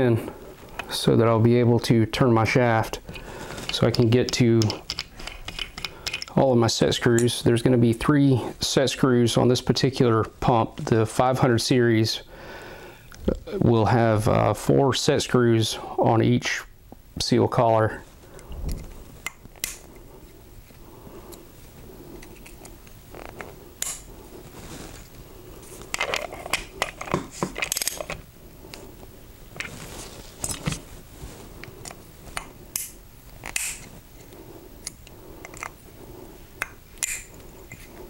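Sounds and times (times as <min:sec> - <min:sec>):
metal hand tools clinking and scraping: 0:03.1 - 0:06.4, 0:30.4 - 0:30.8.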